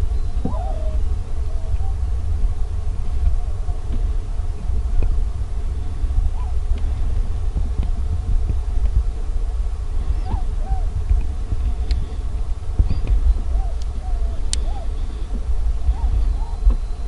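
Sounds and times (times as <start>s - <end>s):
low wind rumble on microphone: 0.0s - 17.0s
distant honking bird calls: 10.0s - 17.0s.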